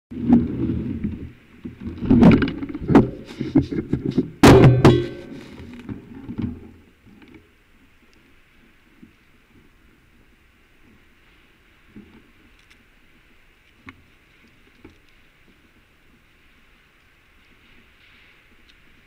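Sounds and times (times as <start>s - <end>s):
faint steady hiss: 0.2s - 19.0s
bicycle knocking and rattling: 2.0s - 5.8s
loud ringing metallic clank: 4.4s - 5.6s.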